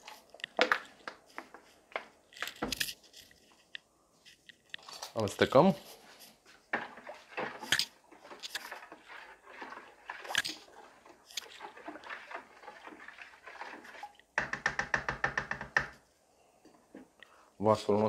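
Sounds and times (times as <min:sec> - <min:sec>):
spoon swishing soapy water: 0:05.8 - 0:14.4.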